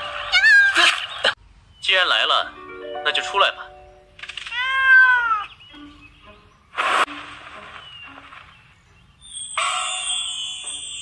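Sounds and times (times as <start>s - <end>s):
bright shimmering chime: 9.2s - 11.0s.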